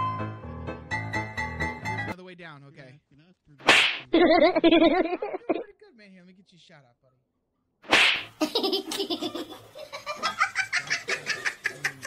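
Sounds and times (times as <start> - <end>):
person laughing: 4.1 - 5.7, 8.4 - 12.0.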